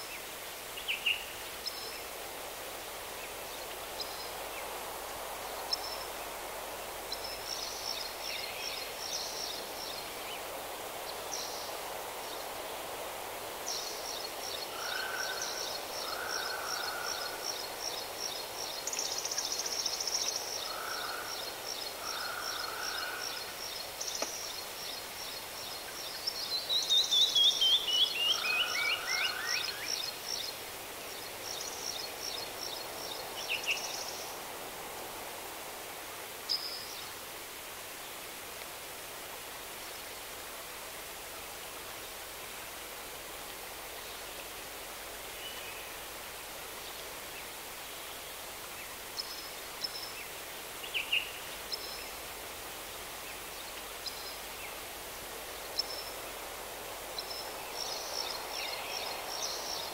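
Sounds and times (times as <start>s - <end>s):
background hiss: 0.0s - 59.9s
songbirds singing: 13.6s - 34.4s, 53.0s - 59.9s.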